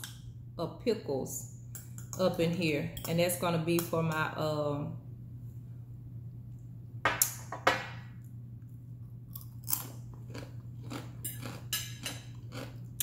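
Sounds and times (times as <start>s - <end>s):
steady low hum: 0.0s - 13.0s
crunchy chewing of fried food: 9.3s - 13.0s.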